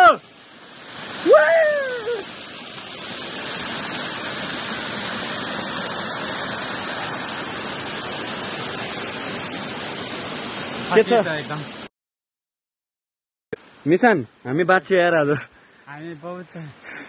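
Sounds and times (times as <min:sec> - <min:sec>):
stream rushing among stones: 0:00.0 - 0:11.9, 0:13.7 - 0:17.0
waterfall splashing onto rocks: 0:00.0 - 0:11.9.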